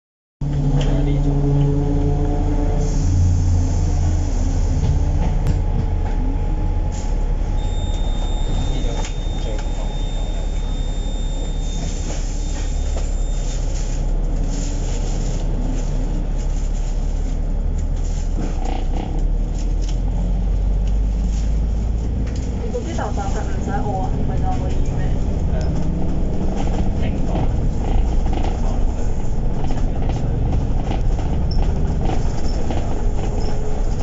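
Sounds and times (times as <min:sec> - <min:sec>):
bus engine and road rumble: 0:00.4 - 0:34.0
bus body rattling: 0:03.2 - 0:34.0
thin high whine: 0:07.6 - 0:13.5.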